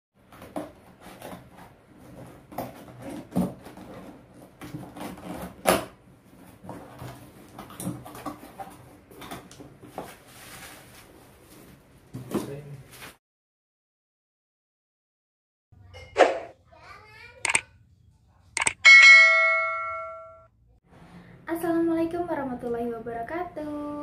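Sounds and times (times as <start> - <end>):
plastic wrapping rustling: 0.4 - 11.9.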